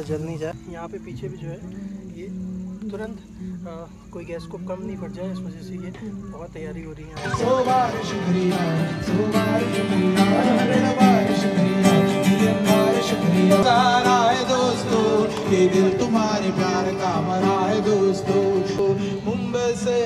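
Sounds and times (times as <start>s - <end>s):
acoustic guitar chords: 0.0s - 20.0s
man singing through microphone: 7.2s - 20.0s.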